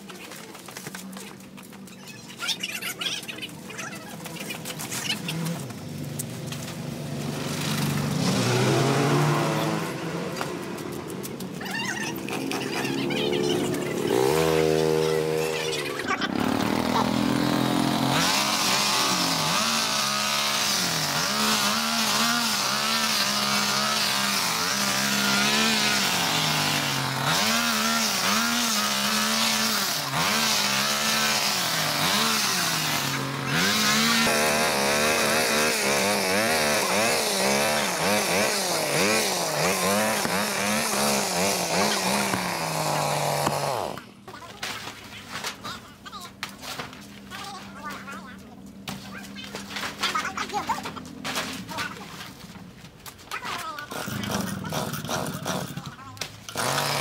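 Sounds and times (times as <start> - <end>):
small petrol engine revving: 4.3 - 44.2, 53.8 - 57.0.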